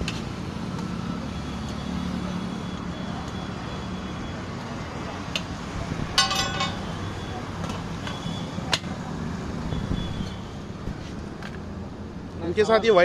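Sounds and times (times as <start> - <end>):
traffic rumble: 0.0 - 13.0
steel utensils clinking: 6.2 - 7.0.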